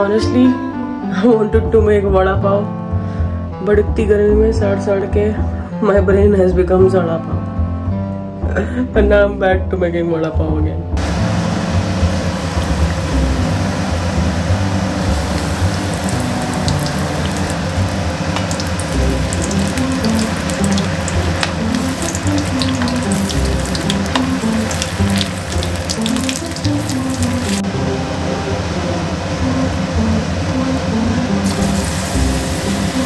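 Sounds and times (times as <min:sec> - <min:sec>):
deep-frying sizzle with pops: 0:11.0 - 0:27.7, 0:31.4 - 0:33.0
plucked melody music: 0:11.0 - 0:30.2.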